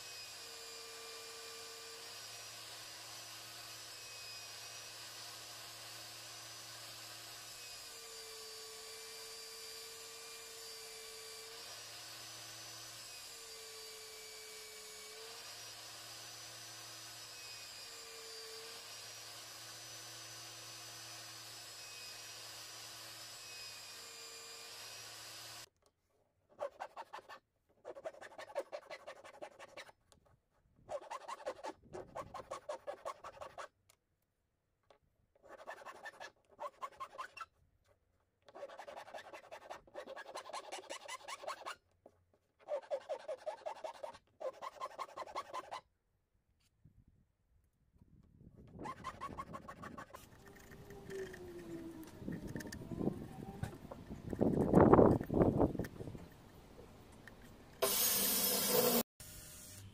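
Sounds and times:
chisel scraping wood: 57.2 - 59.1
belt sander running: 57.8 - 59.1.

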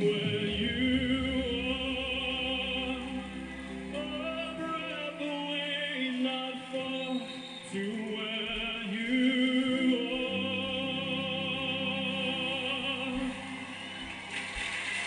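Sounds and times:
man singing a slow ballad: 0.0 - 14.0
instrumental backing music: 0.0 - 15.0.

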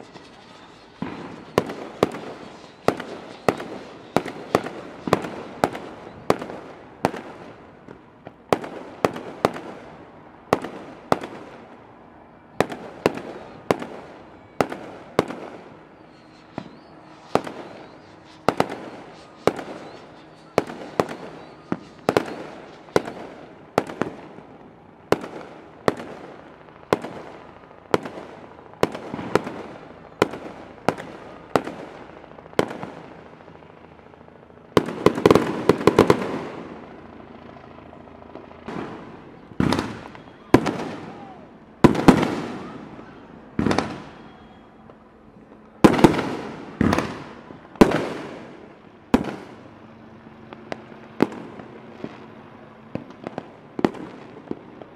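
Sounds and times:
firework shell bursts: 0.0 - 6.4.

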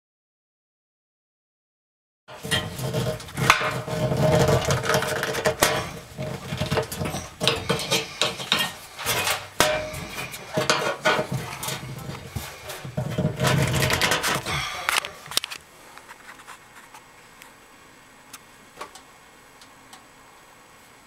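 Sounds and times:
screwdriver scraping metal: 2.3 - 14.6.

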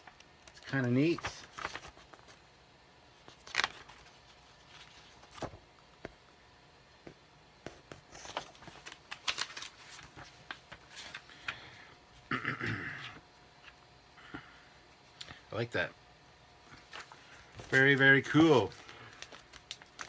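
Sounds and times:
comic book pages turning: 0.2 - 2.4, 3.2 - 5.6, 7.8 - 11.6, 16.8 - 20.0.

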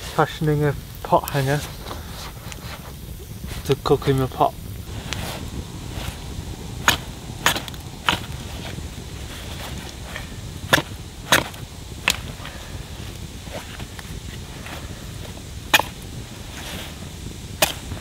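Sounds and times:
blade chopping wooden stick: 6.8 - 8.7, 9.6 - 12.4, 15.7 - 16.1, 17.6 - 18.0.

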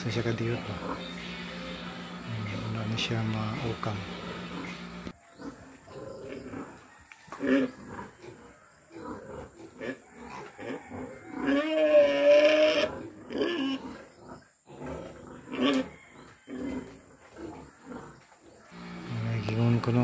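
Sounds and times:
pigs grunting: 0.0 - 20.0
pig drawn-out call: 4.2 - 14.1, 14.8 - 18.9.

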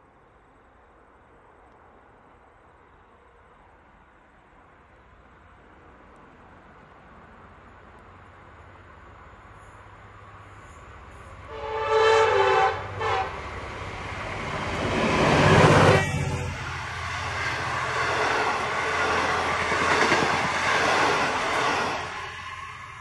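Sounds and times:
rolling rumble of train cars: 0.0 - 23.0
train horn blasts: 11.4 - 13.6, 15.3 - 16.8.

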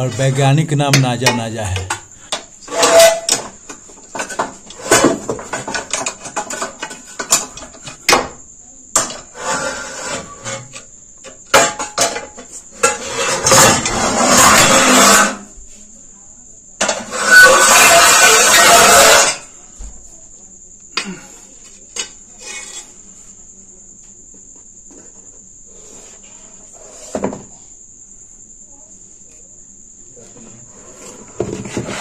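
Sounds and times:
objects scraping on concrete floor: 0.0 - 8.2, 9.0 - 15.9, 16.8 - 20.0, 21.3 - 23.4, 24.9 - 27.7, 30.2 - 32.0.

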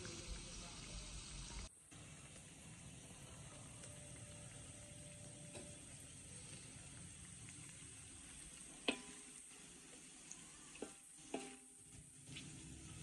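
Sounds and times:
sizzling oil in a wok: 0.0 - 13.0
spatula stirring: 5.3 - 13.0
spatula knocking against wok: 8.8 - 9.3, 10.7 - 11.8.

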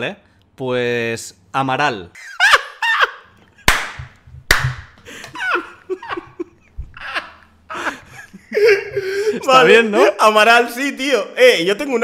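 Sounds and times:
men laughing: 2.2 - 3.7, 5.0 - 10.2
sharp hand claps: 3.6 - 5.0.

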